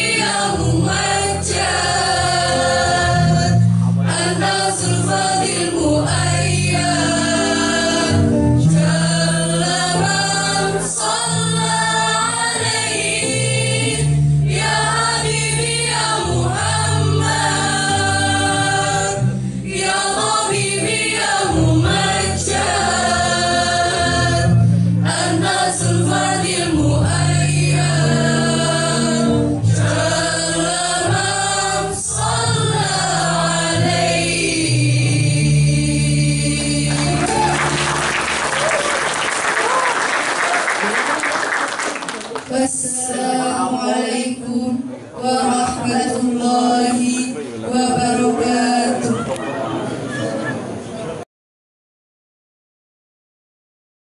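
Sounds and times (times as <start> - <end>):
choir singing: 0.0 - 39.6, 42.5 - 49.4.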